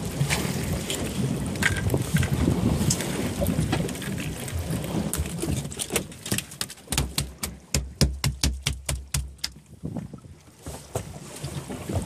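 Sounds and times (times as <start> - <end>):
wind noise on microphone: 0.0 - 6.3, 6.9 - 12.0
dull thumps: 6.3 - 9.6
sharp knocks and taps: 6.3 - 9.6.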